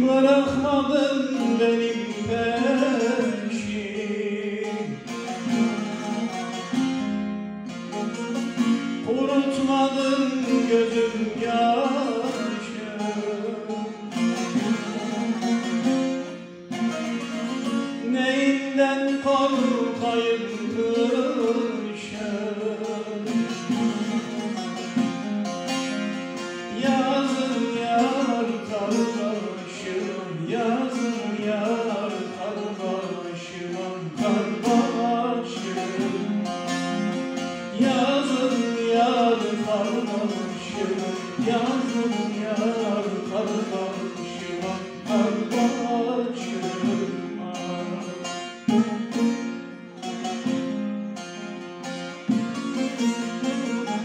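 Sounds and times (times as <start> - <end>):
person singing: 0.0 - 6.0, 9.0 - 15.9, 17.6 - 25.0, 26.6 - 37.0, 37.6 - 48.4
plucked lute melody: 0.0 - 54.0.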